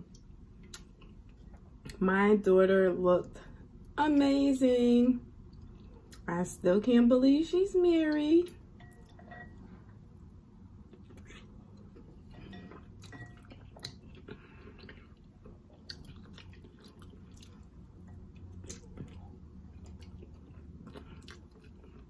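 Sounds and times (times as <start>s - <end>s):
wet chewing and mouth smacks: 0.0s - 2.0s, 10.8s - 22.0s.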